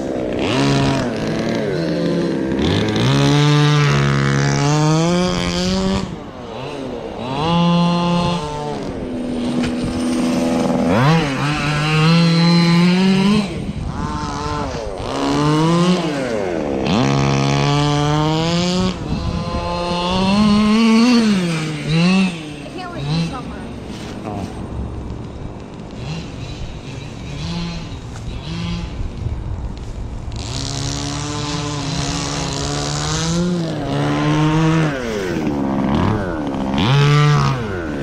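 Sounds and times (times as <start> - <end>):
small two-stroke engines revving: 0.0 - 38.0.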